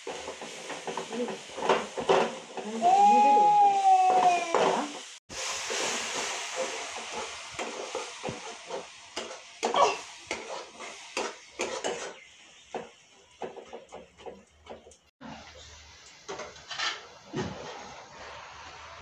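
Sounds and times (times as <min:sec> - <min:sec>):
vegetables sizzling: 0:00.0 - 0:19.0
metal spatula scraping pan: 0:06.6 - 0:12.4, 0:16.3 - 0:18.6.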